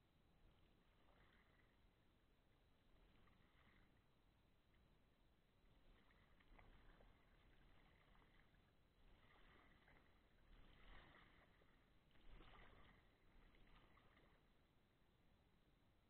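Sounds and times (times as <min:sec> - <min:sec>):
paddle splashing in water: 0:05.7 - 0:14.6.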